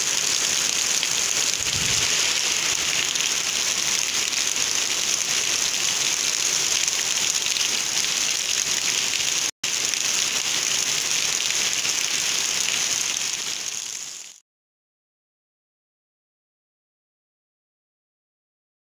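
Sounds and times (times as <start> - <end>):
heavy rain pouring: 0.0 - 14.4.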